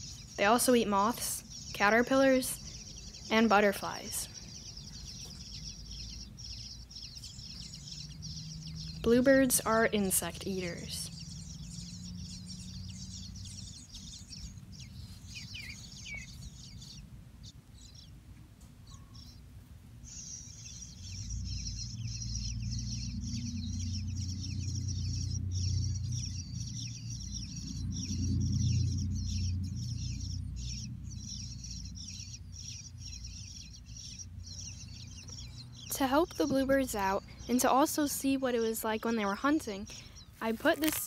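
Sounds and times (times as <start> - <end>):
small birds chirping: 0.0 - 41.0
low rumble: 20.1 - 37.3.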